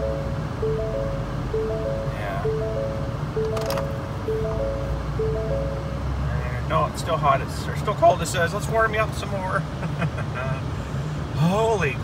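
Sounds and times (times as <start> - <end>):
three-note warning chime: 0.0 - 6.7
diesel engine idling: 0.0 - 12.0.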